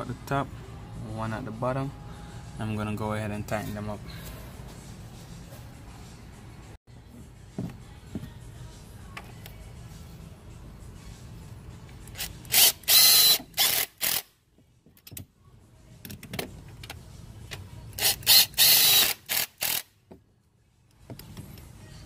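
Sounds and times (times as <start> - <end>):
cordless drill tightening bolts: 12.1 - 14.3, 18.0 - 19.9.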